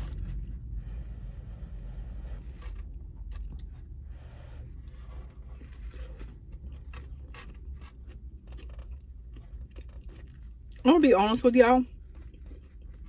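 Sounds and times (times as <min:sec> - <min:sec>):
low steady rumble: 0:00.0 - 0:13.0
person chewing food: 0:02.0 - 0:10.8, 0:11.9 - 0:13.0.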